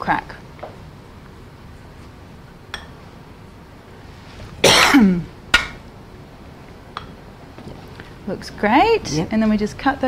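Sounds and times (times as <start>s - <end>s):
person coughing: 4.6s - 5.3s.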